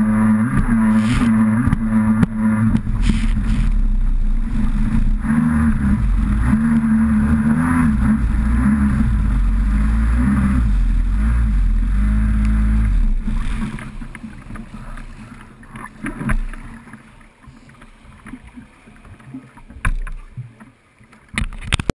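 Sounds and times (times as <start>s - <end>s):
jet ski engine running hard: 0.0s - 17.0s
water splashing against hull: 0.0s - 21.9s.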